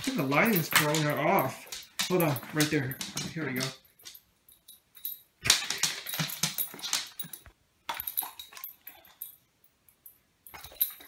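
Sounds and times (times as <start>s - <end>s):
dog crunching dry kibble: 0.0s - 4.2s, 5.4s - 9.1s.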